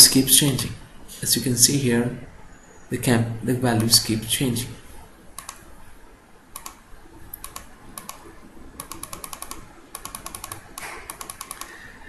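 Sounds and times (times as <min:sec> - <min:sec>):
computer double clicks: 0:07.4 - 0:11.8.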